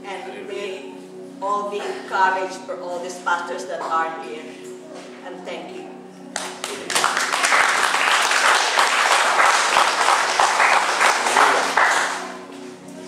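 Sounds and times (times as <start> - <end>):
congregation applauding: 6.3 - 12.6.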